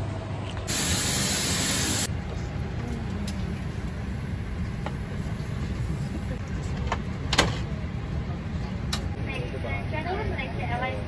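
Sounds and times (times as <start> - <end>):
hiss of air: 0.7 - 2.1
loud rush of hiss: 0.7 - 2.1
airliner cabin rumble: 2.1 - 11.0.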